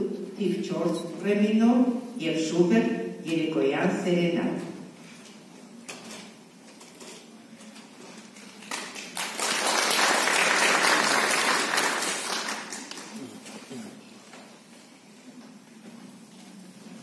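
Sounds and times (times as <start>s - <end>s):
audience applauding: 8.4s - 13.4s.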